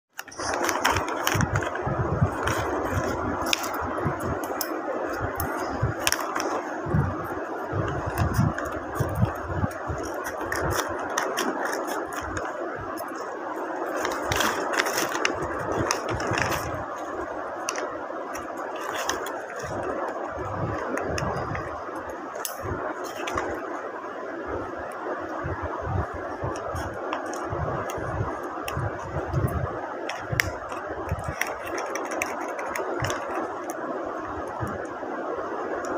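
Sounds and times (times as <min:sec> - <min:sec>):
paper and tape crinkling: 0:00.1 - 0:23.8, 0:26.0 - 0:34.9
steady background noise: 0:00.1 - 0:35.9.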